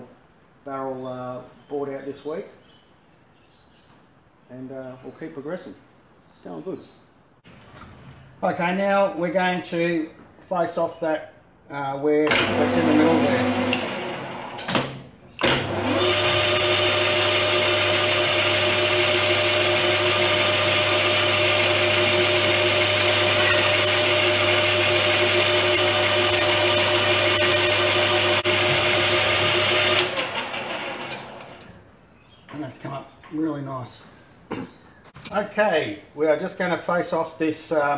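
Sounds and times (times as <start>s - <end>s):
metal lathe running: 12.3s - 14.7s, 15.4s - 31.6s.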